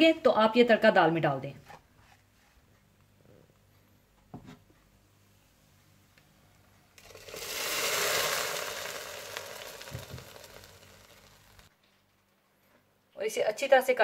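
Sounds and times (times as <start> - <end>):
hot oil sizzling: 7.0 - 11.7.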